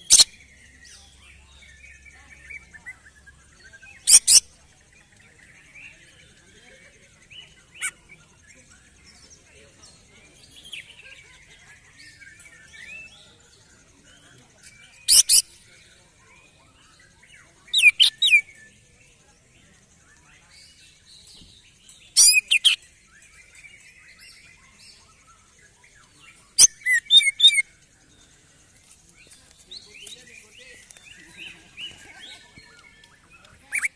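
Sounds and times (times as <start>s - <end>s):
faint chirping of other birds: 0.0s - 33.9s.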